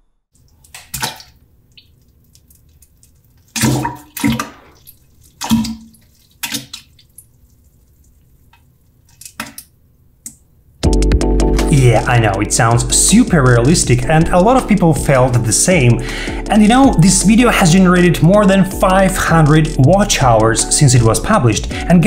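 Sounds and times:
wet plops into toilet water: 0.4 - 9.6.

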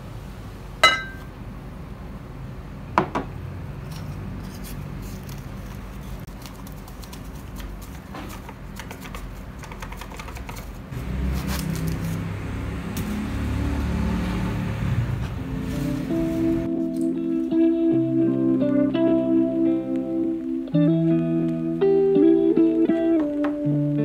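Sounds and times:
background music with guitar: 15.3 - 24.0.

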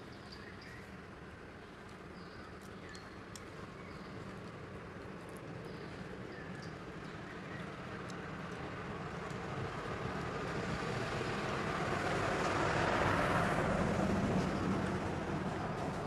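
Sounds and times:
vehicle passing: 8.7 - 16.0.

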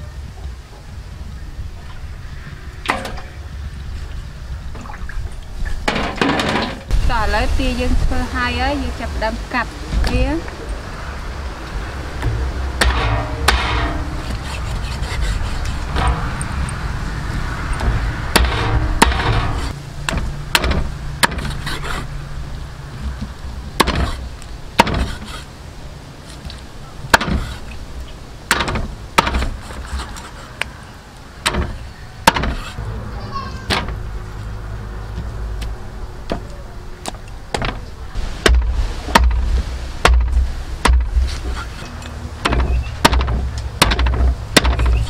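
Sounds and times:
cleaver chopping on wooden block: 18.4 - 22.0, 23.8 - 24.2, 24.8 - 25.4, 27.1 - 27.6, 28.5 - 30.1, 31.4 - 32.8, 40.0 - 41.4, 42.4 - 45.0.

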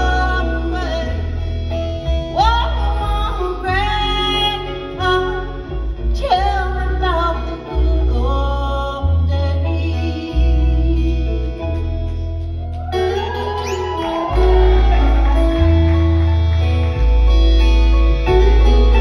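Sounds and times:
female singing: 0.0 - 1.4, 2.3 - 12.0
acoustic guitars: 0.0 - 19.0
upright bass: 0.0 - 19.0.

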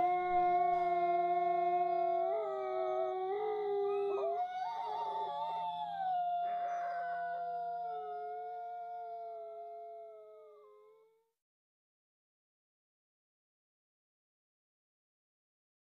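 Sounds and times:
wolves howling: 0.0 - 11.0.

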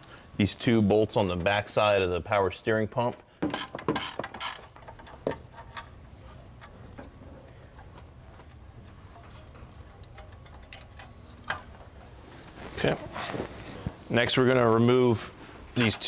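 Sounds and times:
ratchet wrench clicking: 3.4 - 5.9.

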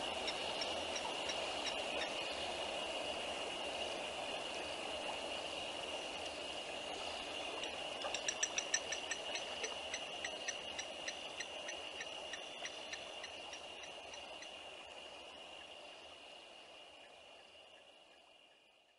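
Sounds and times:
insects trilling: 0.0 - 18.9
animal clicking calls: 8.0 - 14.5.

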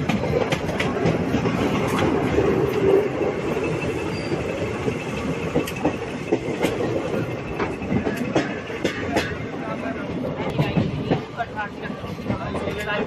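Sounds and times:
sharp clacks from rails: 0.0 - 9.7
train wheel rumble: 0.0 - 13.0.

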